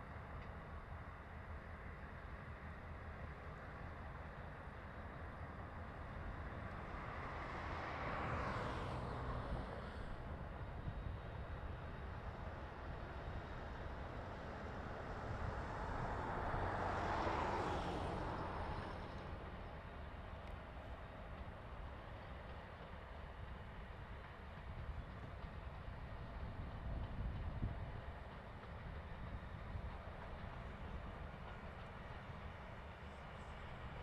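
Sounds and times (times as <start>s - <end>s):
distant locomotive engines rumbling: 0.0s - 34.0s.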